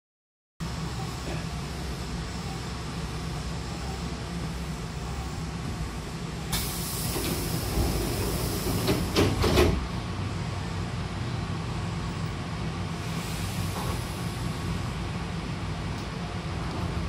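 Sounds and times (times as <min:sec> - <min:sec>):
low train hum: 0:00.6 - 0:17.0
train doors hissing: 0:06.0 - 0:10.0, 0:13.0 - 0:14.8.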